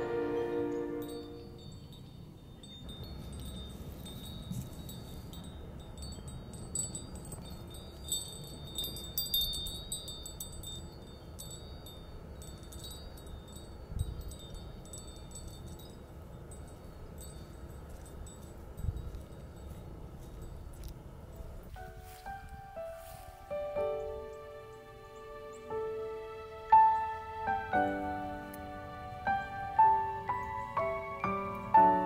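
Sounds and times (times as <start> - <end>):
wind chime tinkling: 0.0 - 23.2
low rumble of wind: 0.0 - 32.0.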